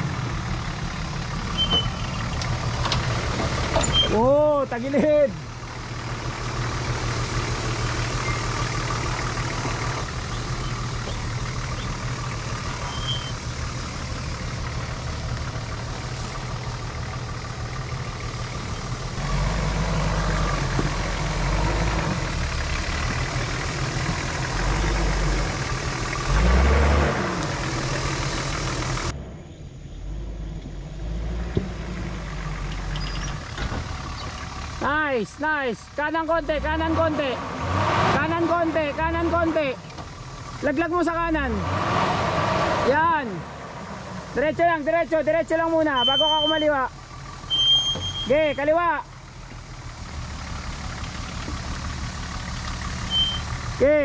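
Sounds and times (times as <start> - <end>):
off-road vehicle engine running: 0.0 - 54.0.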